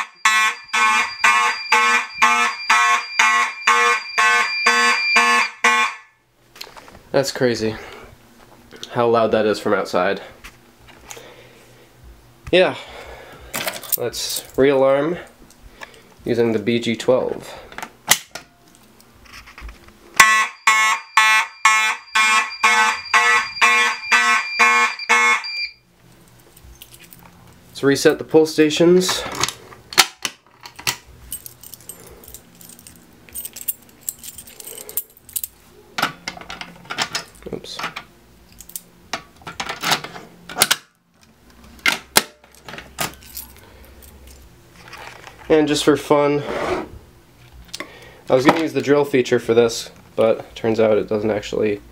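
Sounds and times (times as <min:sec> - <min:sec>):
fire alarm horns blasting: 0:00.0 - 0:06.2, 0:20.2 - 0:25.9
keys jangling and clicking in lock: 0:26.6 - 0:27.2, 0:30.6 - 0:35.6.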